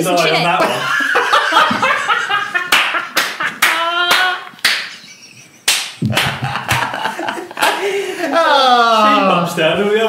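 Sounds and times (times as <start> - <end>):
laughter: 0.6 - 4.0, 4.9 - 8.7
sharp hand claps: 2.7 - 5.0, 5.6 - 7.0, 7.6 - 7.8.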